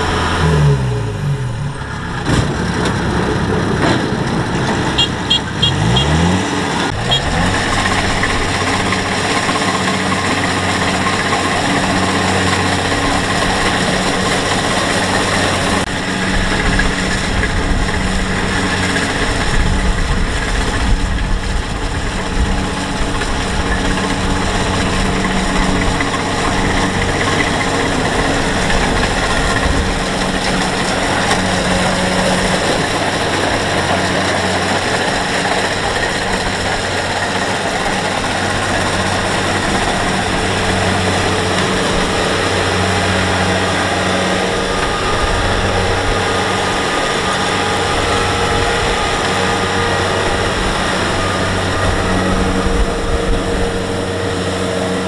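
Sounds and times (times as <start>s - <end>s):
combine harvester droning: 0.0s - 55.0s.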